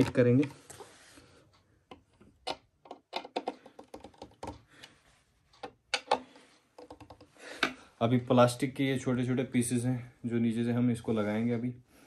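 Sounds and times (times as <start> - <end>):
screwdriver clicking and tapping: 1.9 - 4.6, 5.6 - 6.2, 6.8 - 7.3.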